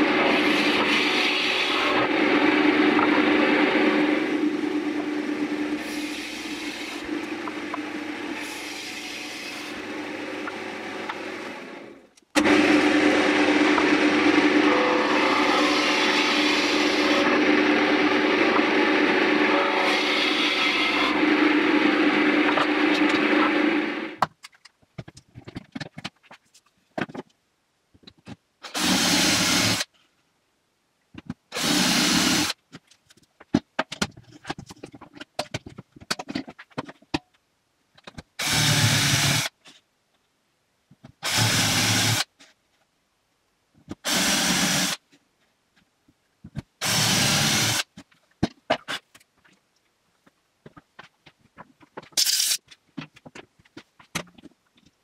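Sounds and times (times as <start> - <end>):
cordless drill boring wood: 0.0 - 4.7, 5.7 - 24.2, 28.7 - 29.9, 31.5 - 32.6, 38.4 - 39.5, 41.2 - 42.3, 44.0 - 45.0, 46.8 - 47.9.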